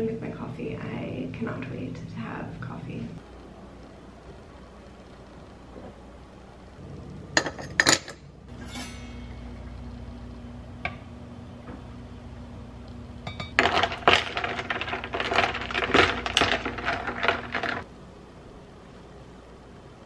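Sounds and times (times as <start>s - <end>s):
steady low hum: 0.0s - 20.0s
coffee pouring: 13.5s - 17.8s.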